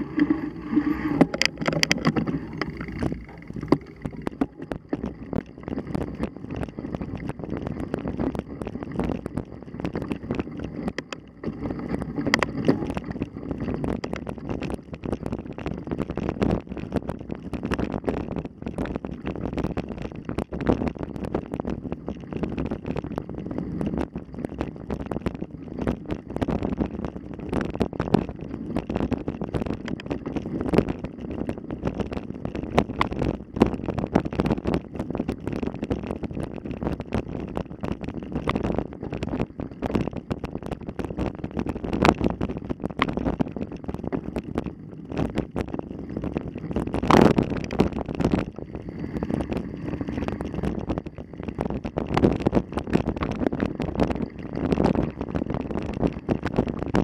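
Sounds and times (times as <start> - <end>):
bike rattles and knocks: 0.0 - 18.0
wind buffeting microphone: 0.0 - 57.0.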